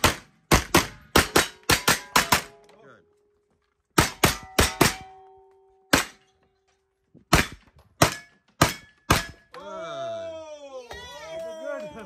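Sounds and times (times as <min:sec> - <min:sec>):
rifle shots: 0:00.0 - 0:02.7
steel target ringing: 0:04.0 - 0:06.4.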